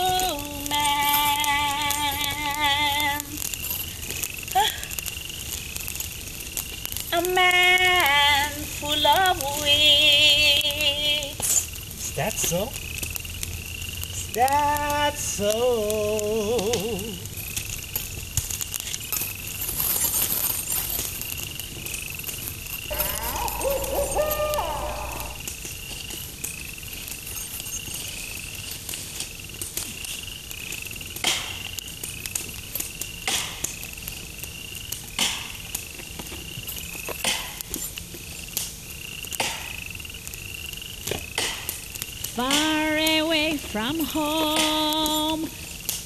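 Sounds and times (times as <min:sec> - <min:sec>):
cricket chirping: 0:00.0 - 0:46.0
sharp cracks: 0:00.0 - 0:46.0
brief wavering call: 0:22.9 - 0:25.4.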